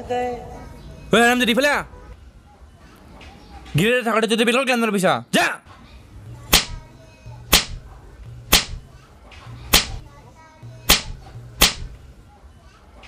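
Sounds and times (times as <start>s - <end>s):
sharp slaps on a face: 6.5s - 6.8s, 7.5s - 7.8s, 8.5s - 10.0s, 10.9s - 12.0s.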